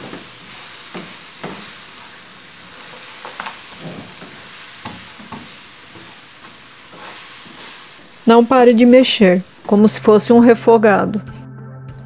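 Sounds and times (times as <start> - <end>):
spatula scraping a pan: 0.0 - 8.0
granola sizzling in a frying pan: 0.0 - 10.6.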